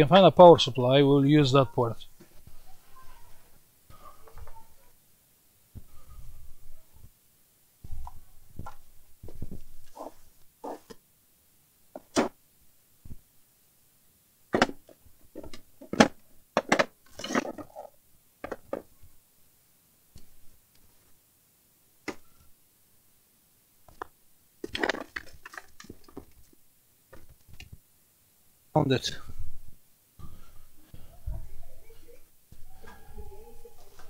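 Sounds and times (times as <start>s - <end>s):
objects knocking and clicking: 14.5s - 17.8s, 23.9s - 27.7s.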